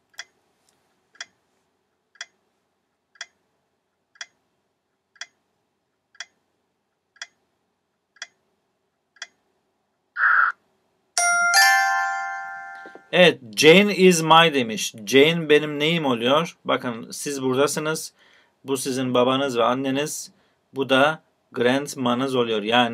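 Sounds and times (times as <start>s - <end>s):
countdown timer ticking: 11.2s - 13.2s.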